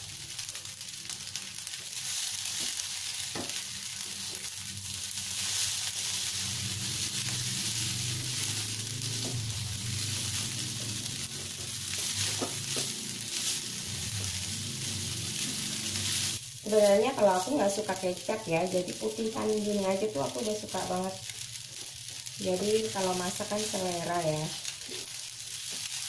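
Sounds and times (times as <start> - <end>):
noodles sizzling in a wok: 0.0 - 26.0
spatula scraping and knocking pan: 9.1 - 14.4.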